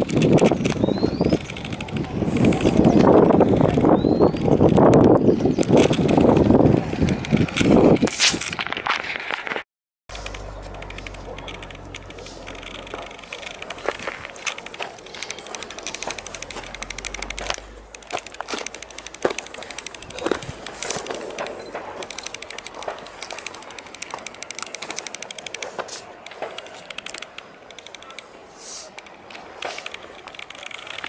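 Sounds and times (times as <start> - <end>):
footsteps crunching on gravel: 8.1 - 25.1
low rumble: 10.1 - 23.6.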